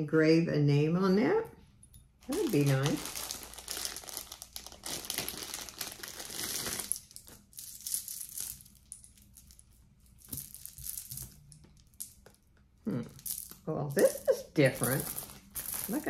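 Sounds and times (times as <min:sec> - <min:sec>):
packaging rustling and crinkling: 0:02.2 - 0:08.7, 0:14.8 - 0:16.0.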